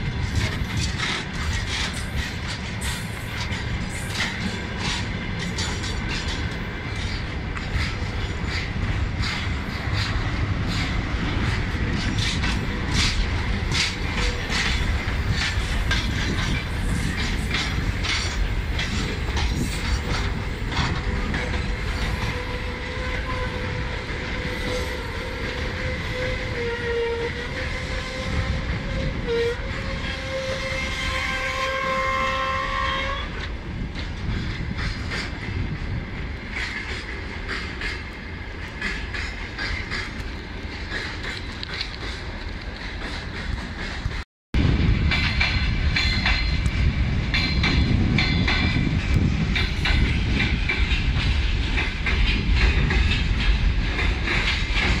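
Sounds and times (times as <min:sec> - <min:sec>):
wheels clicking over rail joints: 0:00.2 - 0:26.2, 0:36.2 - 0:44.2, 0:45.1 - 0:55.0.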